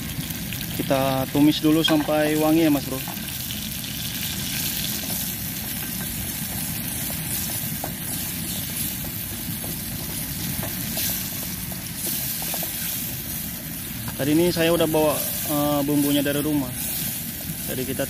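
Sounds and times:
paste sizzling in oil: 0:00.0 - 0:18.0
spatula stirring in pot: 0:04.8 - 0:14.2.

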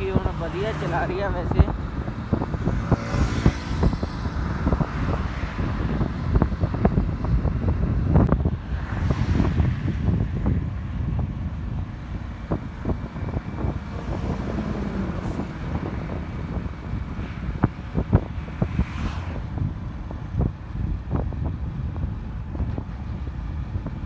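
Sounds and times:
road noise: 0:00.0 - 0:24.0
wind buffeting microphone: 0:00.0 - 0:24.0.

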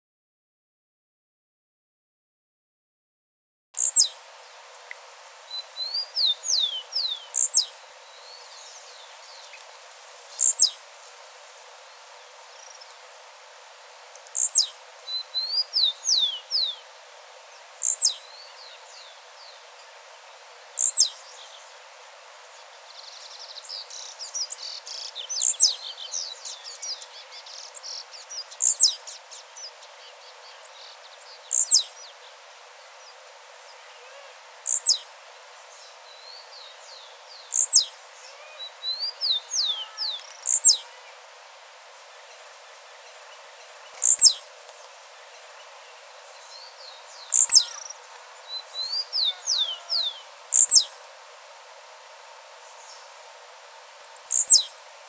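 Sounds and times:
faint bird chirps: 0:03.8 - 0:10.8, 0:13.8 - 0:21.8, 0:22.4 - 0:41.2, 0:42.0 - 0:51.0, 0:53.7 - 0:54.8.

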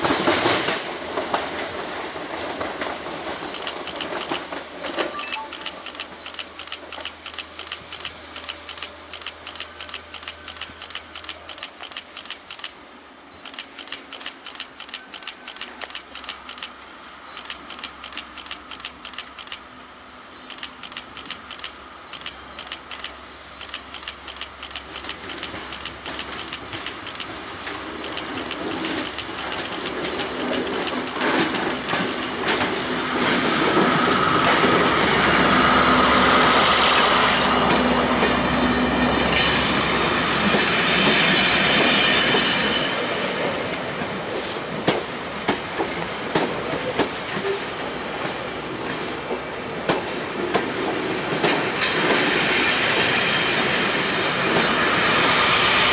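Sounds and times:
coaches rolling clickety-clack: 0:00.0 - 0:12.8, 0:13.4 - 0:16.8, 0:20.5 - 0:35.3
train wheels clicking over rail joints: 0:00.0 - 0:19.8, 0:20.4 - 0:38.4, 0:43.4 - 0:55.9
locomotive hum and whine: 0:02.4 - 0:55.9.

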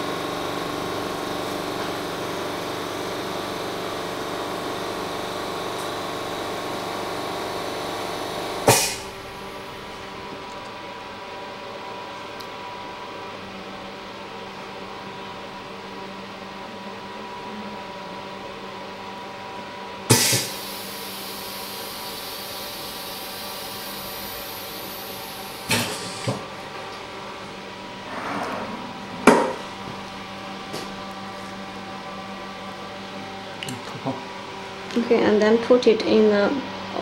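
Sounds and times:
machine humming: 0:00.0 - 0:11.4, 0:20.1 - 0:34.9
air hiss: 0:08.6 - 0:09.2, 0:20.1 - 0:26.3
loud knock: 0:29.2 - 0:29.6.

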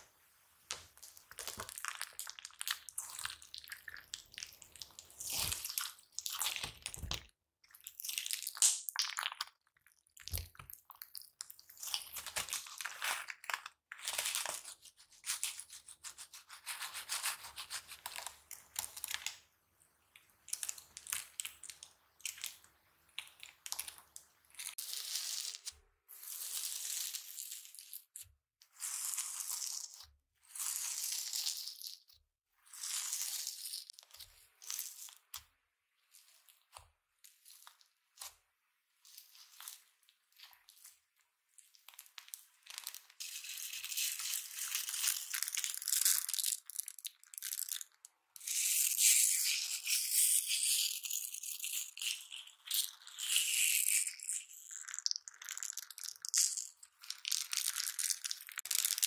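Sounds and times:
slime crackling and squishing: 0:00.8 - 0:19.4.

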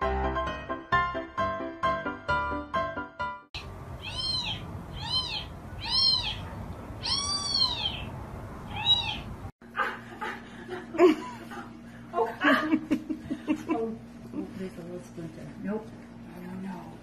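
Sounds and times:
pet meowing: 0:03.6 - 0:08.1, 0:08.7 - 0:09.3.

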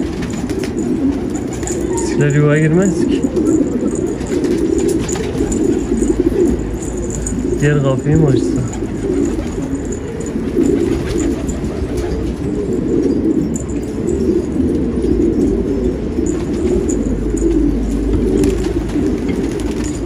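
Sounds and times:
pigeons cooing: 0:00.0 - 0:20.0.

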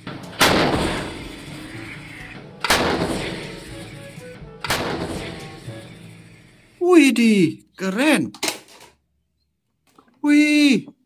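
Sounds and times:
music: 0:00.0 - 0:06.9
artillery gun booms: 0:00.3 - 0:01.4, 0:02.6 - 0:03.5, 0:04.6 - 0:05.4.

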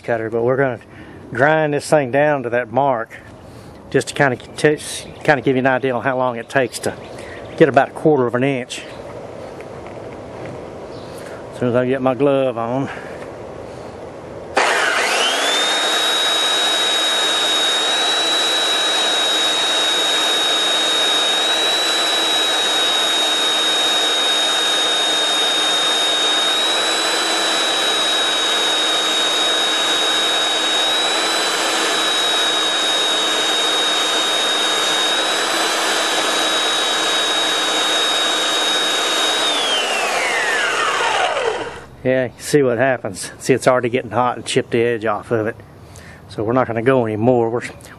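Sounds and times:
belt sander motor whine: 0:14.5 - 0:42.5.

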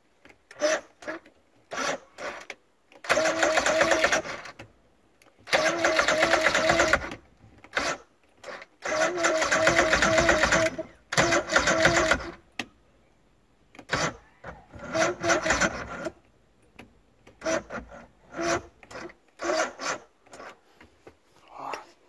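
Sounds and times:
outboard starter cranking: 0:00.5 - 0:04.6, 0:05.4 - 0:12.4, 0:13.8 - 0:16.2, 0:17.3 - 0:20.6.

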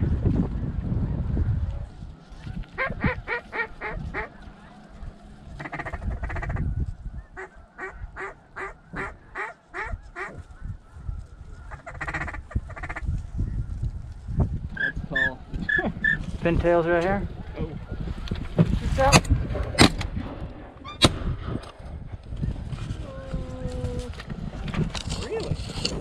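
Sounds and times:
rapid snow goose honks: 0:05.6 - 0:06.6, 0:07.4 - 0:10.4, 0:11.7 - 0:13.0.

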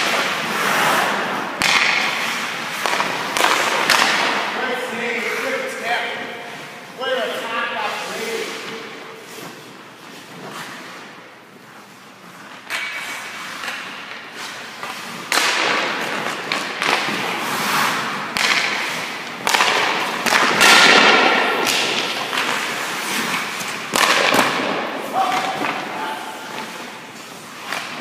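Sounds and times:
hockey pucks cracking and thudding: 0:00.0 - 0:05.6, 0:12.0 - 0:28.0
skates scraping ice: 0:00.0 - 0:28.0.

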